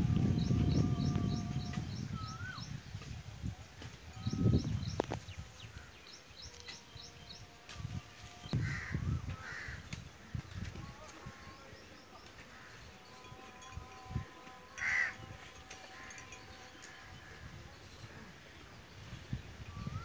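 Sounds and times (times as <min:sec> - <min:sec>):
birds chirping: 0:00.0 - 0:03.2, 0:03.8 - 0:20.0
crow cawing: 0:08.6 - 0:09.8, 0:14.8 - 0:15.2.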